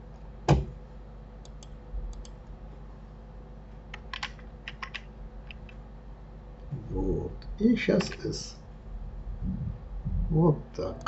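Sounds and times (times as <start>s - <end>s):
keyboard and mouse clicks: 1.4s - 2.4s, 3.9s - 5.8s.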